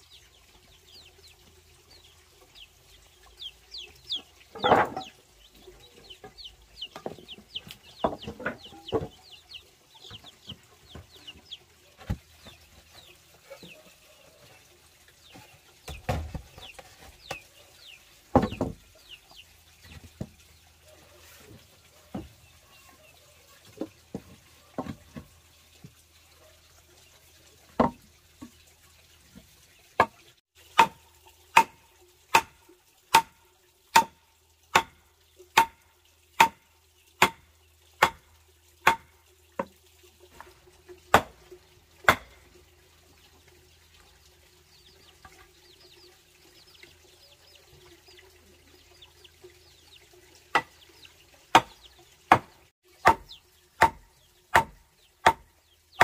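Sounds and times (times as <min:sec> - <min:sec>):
sharp wooden knocks: 0:04.5 - 0:05.1, 0:07.0 - 0:09.2, 0:18.3 - 0:18.8, 0:27.8 - 0:28.0, 0:30.8 - 0:31.0, 0:31.6 - 0:35.0, 0:36.4 - 0:36.6, 0:38.0 - 0:39.7, 0:41.1 - 0:41.4, 0:51.5 - 0:55.5.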